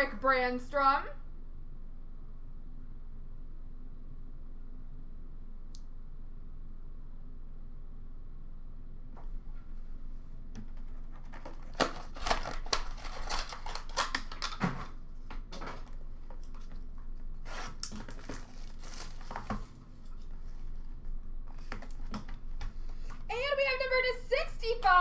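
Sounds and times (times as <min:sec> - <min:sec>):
plastic wrapping crinkling and tearing: 0:10.8 - 0:15.0, 0:15.7 - 0:19.7.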